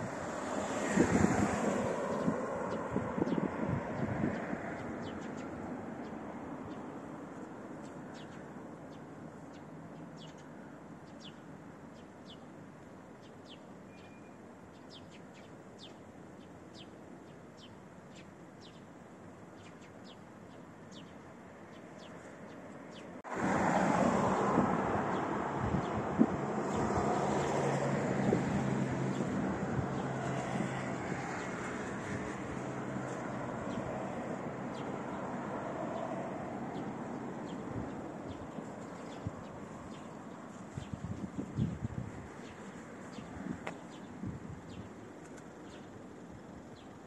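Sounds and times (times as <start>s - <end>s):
loud traffic noise: 0.0s - 5.1s, 23.3s - 40.0s
low traffic rumble: 0.0s - 13.8s, 14.4s - 47.0s
bird chirping high falling chirps: 13.9s - 15.2s.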